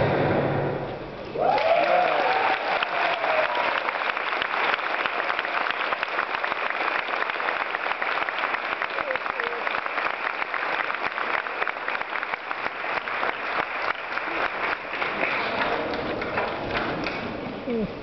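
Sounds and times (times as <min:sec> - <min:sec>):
long cheer: 0:01.3 - 0:06.6
audience applauding: 0:01.3 - 0:17.4.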